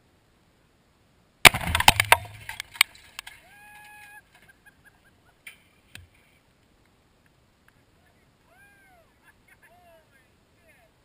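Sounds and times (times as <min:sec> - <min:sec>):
debris landing knocks: 0:01.4 - 0:03.4
debris cracks and clatter: 0:01.5 - 0:03.4
high whooping cries: 0:03.4 - 0:05.2, 0:08.0 - 0:10.9.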